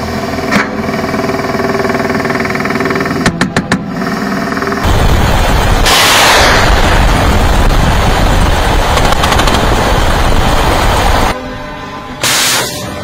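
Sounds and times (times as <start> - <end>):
rapid automatic gunfire: 8.8 - 10.0.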